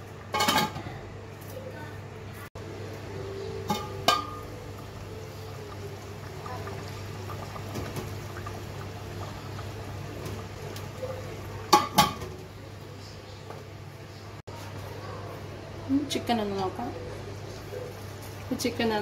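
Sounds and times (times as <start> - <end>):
curry bubbling: 2.6 - 14.5
metal lid clinking on pot: 3.6 - 4.4.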